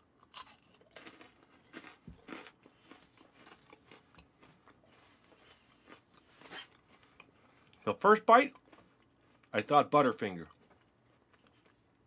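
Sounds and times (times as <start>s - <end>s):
crunching chocolate bar: 0.2s - 4.8s.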